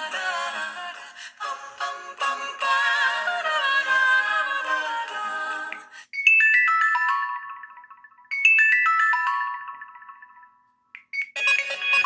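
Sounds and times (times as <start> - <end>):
bell-like ringtone chimes: 6.1 - 12.0.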